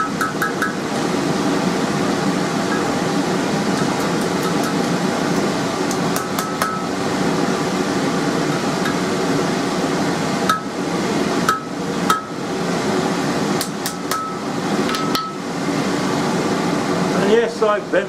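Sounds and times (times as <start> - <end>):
hammer striking steel on anvil: 0.0 - 0.9, 6.1 - 6.9, 10.5 - 10.7, 11.5 - 12.4, 13.6 - 15.4
steady droning background: 0.0 - 18.0.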